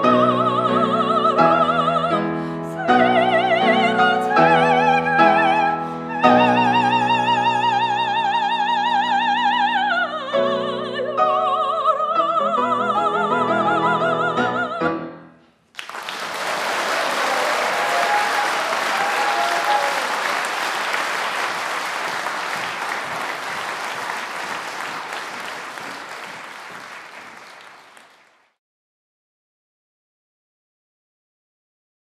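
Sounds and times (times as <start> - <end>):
soprano singing with vibrato: 0.0 - 15.1
piano chords: 0.0 - 15.4
audience applauding: 15.7 - 28.6.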